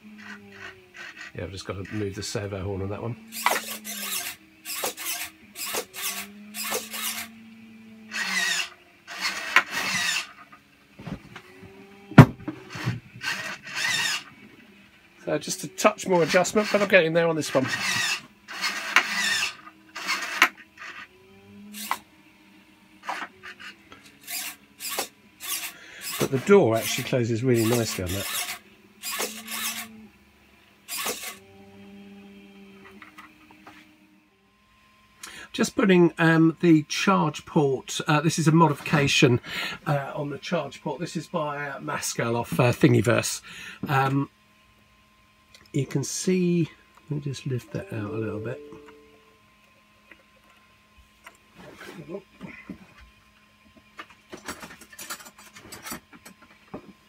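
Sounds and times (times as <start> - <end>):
servo motors whining: 0.0 - 30.2, 30.8 - 34.2.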